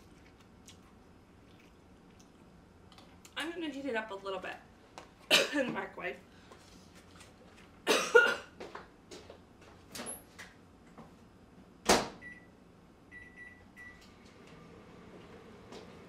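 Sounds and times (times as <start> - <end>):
microwave oven humming: 7.6 - 16.0
short keypad beeps: 13.1 - 14.0.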